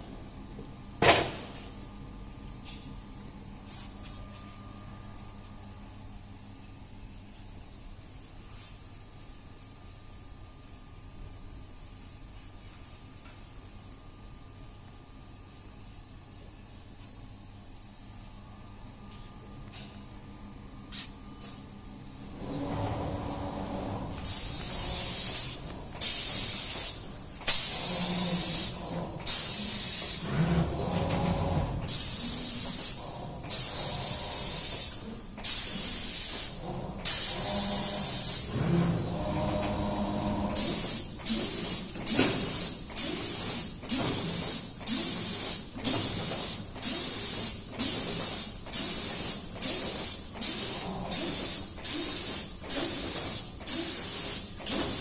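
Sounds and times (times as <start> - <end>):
spray gun hissing bursts: 24.2 - 30.3, 31.9 - 38.5, 40.6 - 55.0.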